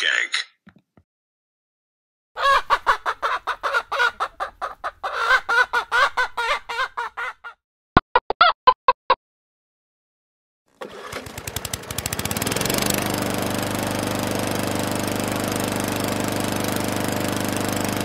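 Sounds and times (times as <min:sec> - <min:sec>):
chicken clucking: 0:02.4 - 0:07.6.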